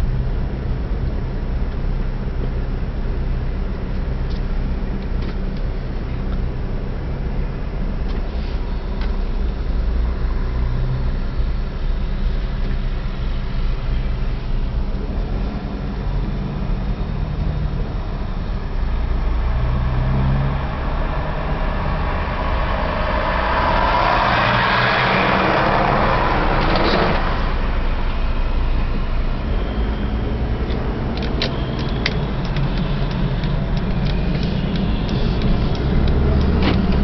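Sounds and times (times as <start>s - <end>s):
truck engine drone: 0.0s - 37.0s
rush of noise: 20.2s - 37.0s
sharp clicks: 30.6s - 37.0s.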